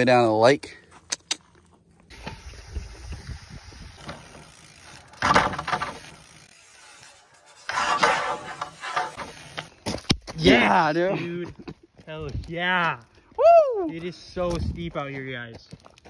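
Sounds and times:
bike tyres rumbling on trail: 2.0s - 10.4s
short loud scrapes: 5.2s - 9.7s.

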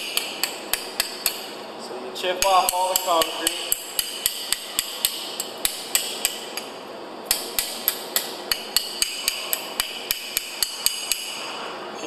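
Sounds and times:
hammer striking steel plate: 7.3s - 11.5s.

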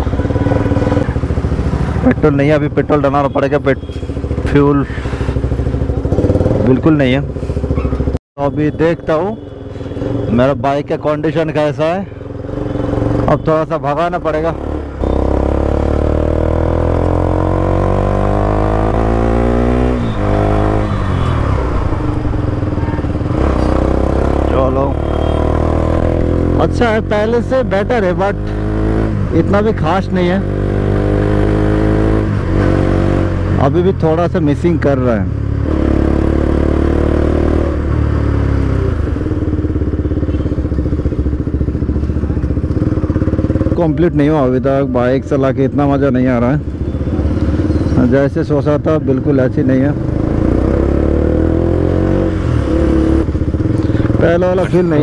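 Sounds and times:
motorcycle engine accelerating: 0.0s - 8.2s, 12.2s - 55.0s
person talking: 54.1s - 55.0s.

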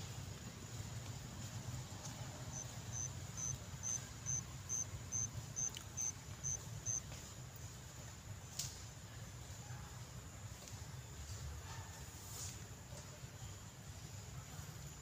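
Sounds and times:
insect chirping: 2.4s - 7.8s.

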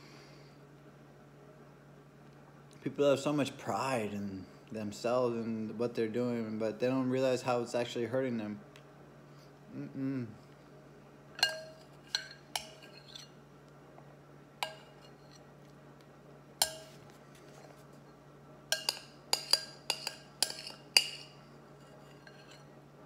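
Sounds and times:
spoon clinking against bowl: 11.4s - 13.3s, 14.6s - 15.4s, 16.6s - 17.0s, 18.7s - 22.6s.

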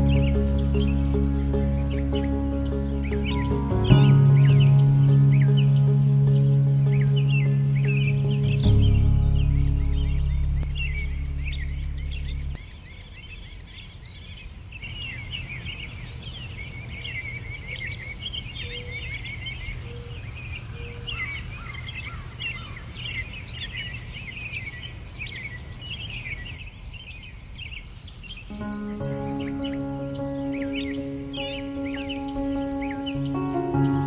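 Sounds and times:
background music: 0.0s - 12.6s, 28.5s - 34.0s
small birds chirping: 0.0s - 34.0s.

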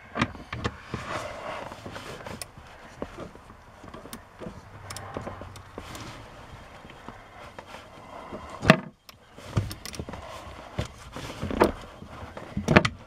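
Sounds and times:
handling noise: 0.0s - 13.0s
socket wrench clicking: 4.8s - 5.7s.

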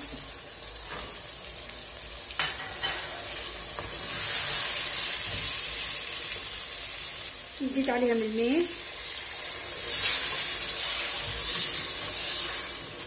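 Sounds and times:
food sizzling in a pot: 0.0s - 13.0s.

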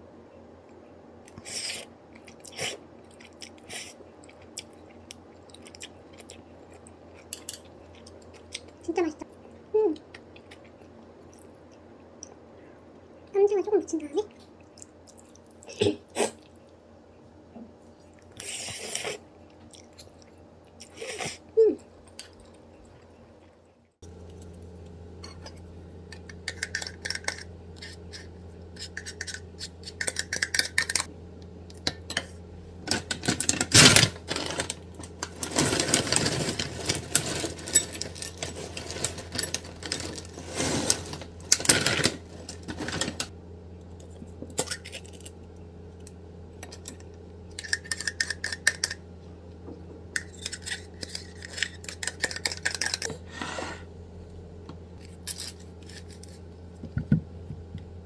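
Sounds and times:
steady low hum: 0.0s - 58.0s
cereal rattling into bowl: 32.9s - 43.3s
plastic bag crinkling: 32.9s - 43.3s.

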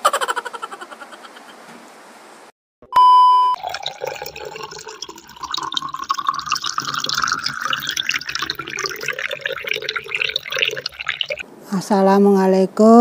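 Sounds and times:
water pouring into a container: 3.5s - 11.4s.

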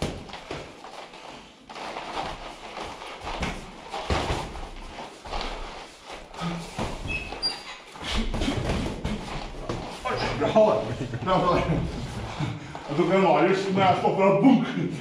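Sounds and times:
boxing gloves thudding: 0.0s - 0.8s, 1.9s - 5.7s, 8.0s - 10.0s.

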